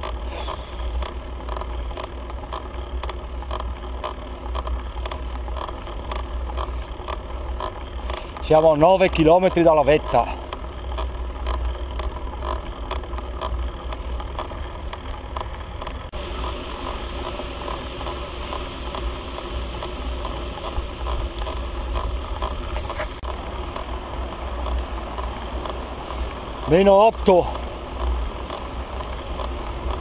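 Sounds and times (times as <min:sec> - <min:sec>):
wind rumbling on microphone: 0:09.2 - 0:30.0
steady hiss: 0:16.1 - 0:30.0.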